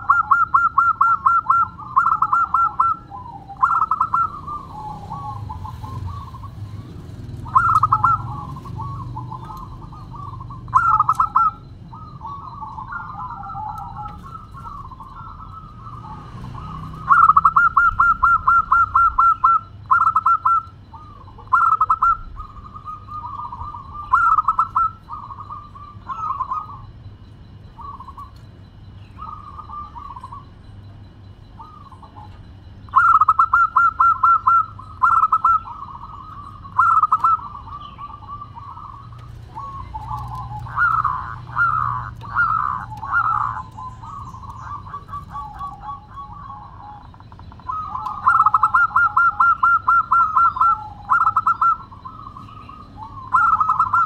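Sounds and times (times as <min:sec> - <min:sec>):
dove cooing: 0:00.0 - 0:54.0.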